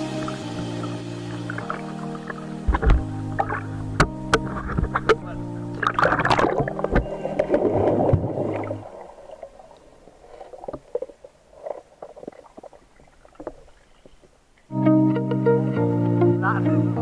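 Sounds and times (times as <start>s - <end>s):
background music: 0.0s - 9.0s, 14.7s - 17.0s
underwater water movement: 0.0s - 14.7s
bubbles popping: 1.5s - 9.8s.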